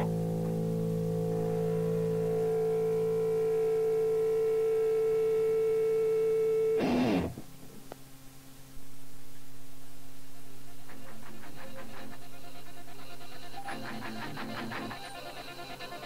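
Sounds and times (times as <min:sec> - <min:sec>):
low drone: 0:00.0 - 0:07.3, 0:08.9 - 0:16.0
electric guitar chord ringing: 0:00.0 - 0:07.4.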